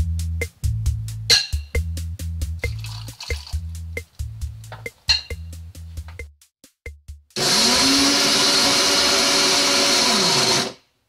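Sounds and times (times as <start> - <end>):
food chopper motor whirring: 7.4 - 10.8.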